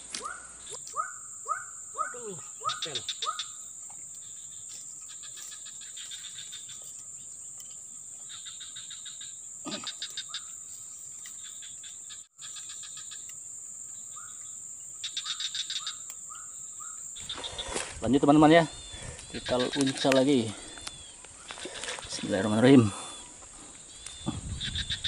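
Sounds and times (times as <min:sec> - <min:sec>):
rapid chirping trills: 0:00.2 - 0:17.7
high-pitched insect drone: 0:00.4 - 0:23.2.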